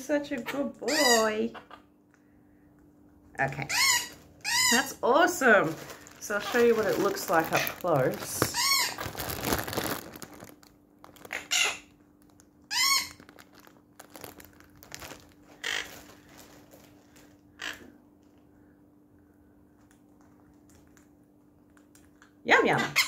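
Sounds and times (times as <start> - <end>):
parrots squawking and chirping: 0.4 - 1.9, 3.6 - 5.0, 8.4 - 9.3, 11.2 - 11.9, 12.7 - 13.4, 15.6 - 16.3, 17.6 - 17.9, 22.8 - 23.0
plastic bag crinkling: 3.8 - 17.4.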